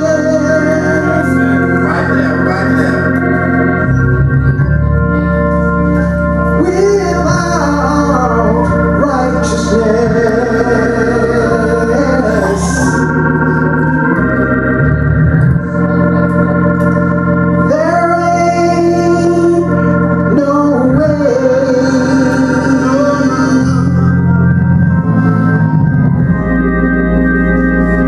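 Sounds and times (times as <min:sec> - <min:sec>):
man singing: 0:00.0 - 0:03.2, 0:06.5 - 0:14.1, 0:17.6 - 0:24.6
organ chords: 0:00.0 - 0:28.0.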